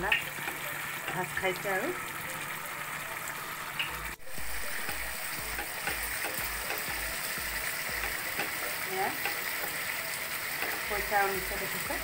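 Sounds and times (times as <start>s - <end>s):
gravy sizzling and bubbling in a wok: 0.0s - 12.0s
spatula stirring: 4.2s - 11.2s.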